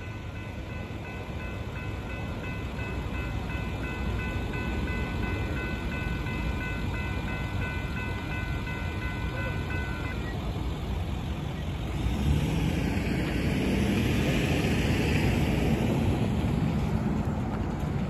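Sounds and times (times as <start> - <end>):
railroad crossing warning bell: 0.0 - 12.1
vehicle passing with tyre hiss: 11.9 - 17.0.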